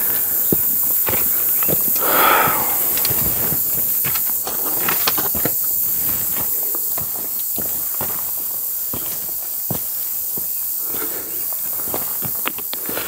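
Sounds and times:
footsteps on loose stones: 0.0s - 13.0s
steady high hiss: 0.0s - 13.0s
short hissing rush: 1.9s - 4.0s.

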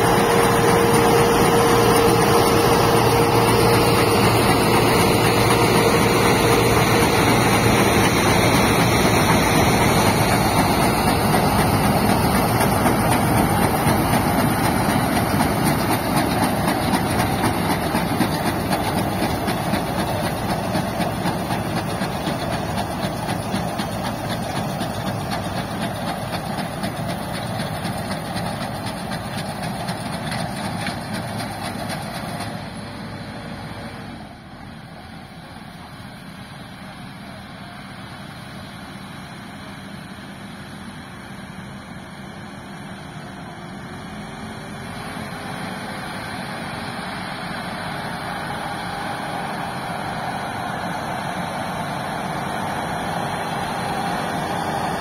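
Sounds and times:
baler machinery running: 0.0s - 36.7s
tractor diesel engine running: 0.0s - 55.0s.

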